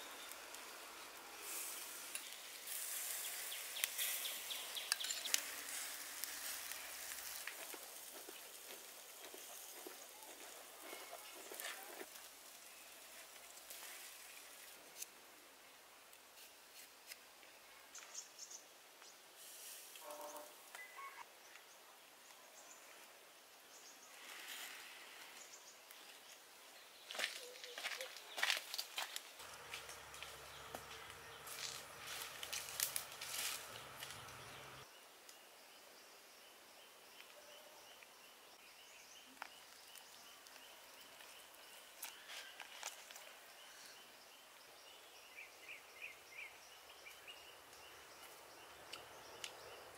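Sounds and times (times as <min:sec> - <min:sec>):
bird call: 0:20.0 - 0:21.2.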